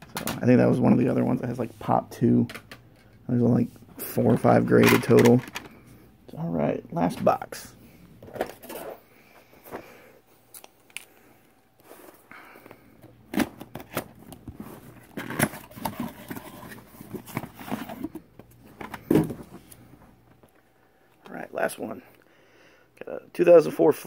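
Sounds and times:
cardboard rustling: 13.4s - 18.2s.

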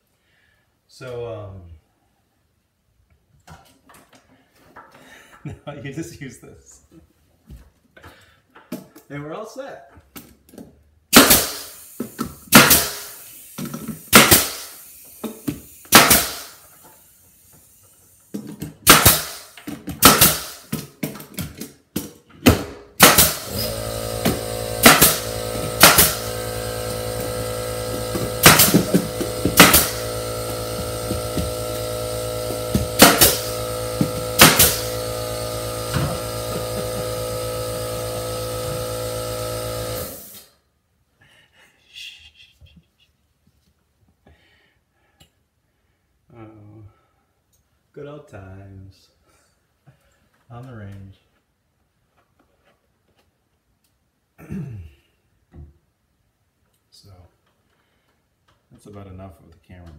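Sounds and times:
nail gun shots: 11.1s - 13.2s, 14.1s - 14.8s, 15.9s - 16.6s, 18.8s - 20.8s, 22.4s - 40.4s
steady machine hum: 23.4s - 40.4s.

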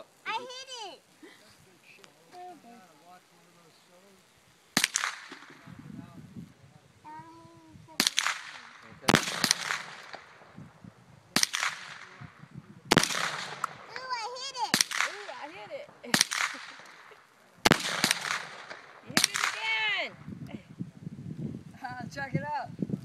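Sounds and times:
rifle gunshots: 4.8s - 5.6s, 8.0s - 10.5s, 11.4s - 12.3s, 12.9s - 19.9s.

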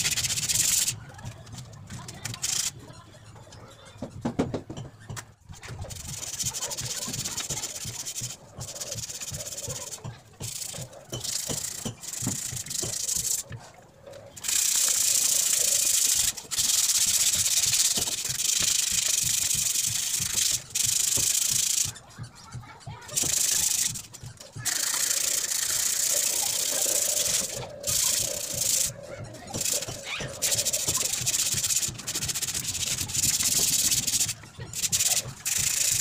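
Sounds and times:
sandpaper rasping on metal: 0.0s - 1.0s, 5.8s - 13.4s, 14.4s - 22.0s, 23.1s - 36.0s
knocks: 4.0s - 6.2s.

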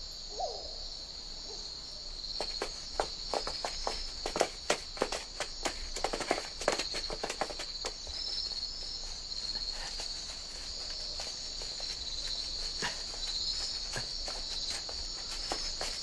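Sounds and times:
crickets chirring: 0.0s - 16.0s
footsteps rustling through grass: 6.8s - 16.0s.

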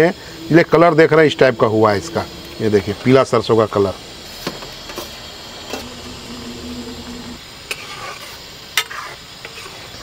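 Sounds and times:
gravy sizzling: 0.6s - 10.0s
low steady hum: 1.6s - 7.5s.

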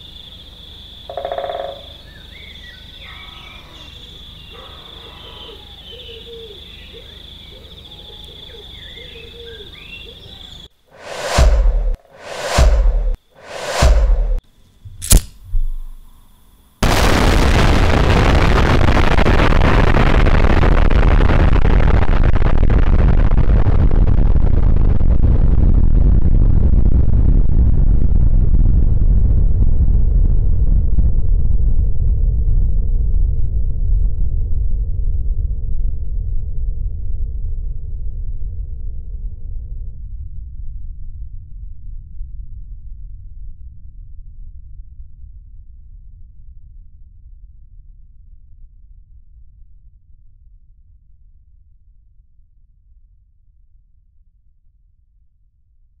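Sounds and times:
high pulsing insect trill: 0.0s - 10.7s
short chirping animal calls: 1.1s - 10.7s
explosion rumble: 11.0s - 14.4s, 16.8s - 37.9s
rising whoosh: 11.0s - 14.4s
loud deep hit: 11.0s - 15.0s.

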